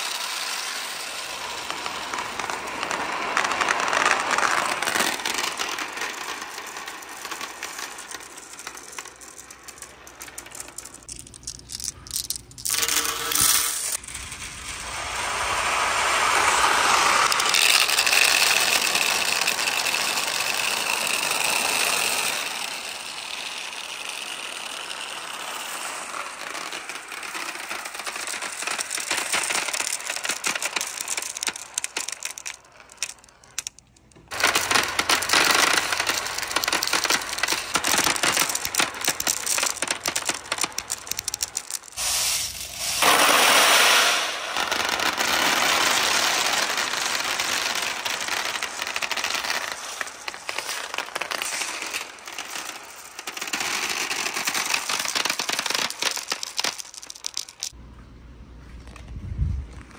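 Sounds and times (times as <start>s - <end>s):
glass marbles rolling and clacking: 0.0s - 57.8s.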